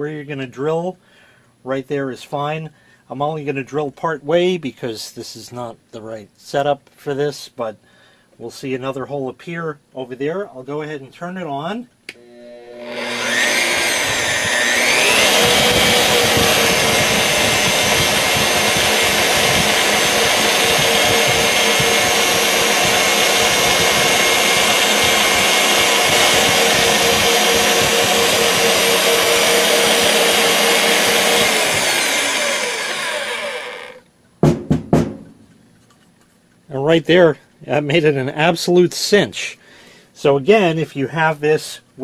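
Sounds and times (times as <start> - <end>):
drill press motor whining: 12.1 - 34.0
drill bit boring into wood: 12.2 - 34.0.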